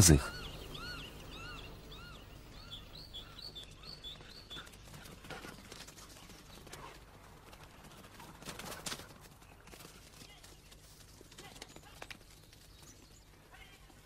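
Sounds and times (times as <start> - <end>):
bird chirping: 0.0 - 6.7
paws running through grass: 3.0 - 14.0.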